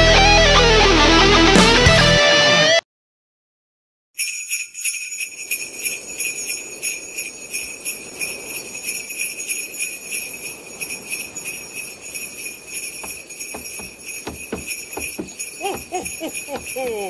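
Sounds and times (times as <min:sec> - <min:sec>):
electric guitar music: 0:00.0 - 0:02.8
sleigh bells jingling: 0:04.2 - 0:17.0.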